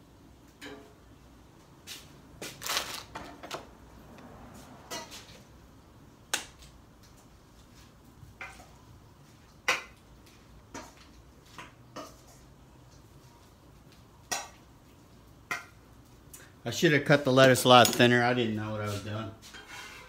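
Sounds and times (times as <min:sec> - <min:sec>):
metal spatula scraping griddle: 0:18.9 - 0:20.0.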